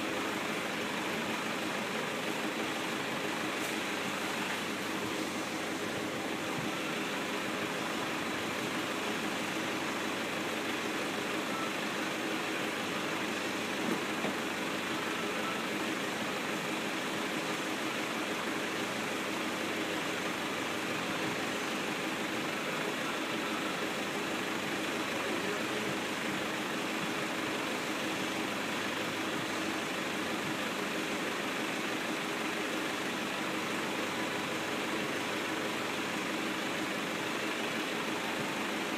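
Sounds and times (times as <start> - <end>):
tractor engine idling: 0.0 - 38.9.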